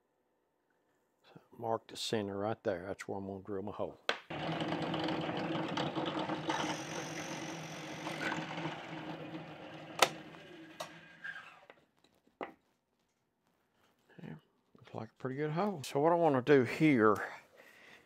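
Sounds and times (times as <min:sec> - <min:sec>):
drill press boring wood: 0:04.3 - 0:11.6.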